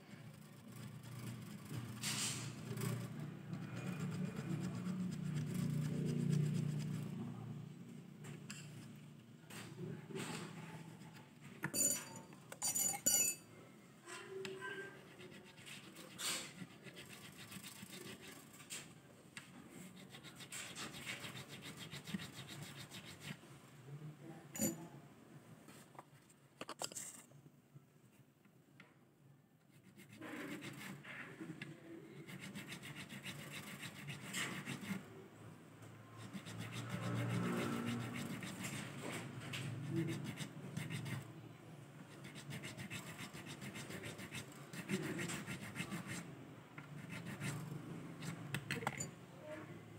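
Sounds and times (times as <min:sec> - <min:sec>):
file rasping on guitar nut: 0:02.6 - 0:07.0, 0:32.3 - 0:35.0, 0:36.2 - 0:39.0, 0:39.8 - 0:41.2, 0:42.2 - 0:46.2
sharp metallic clinks: 0:11.7 - 0:13.4.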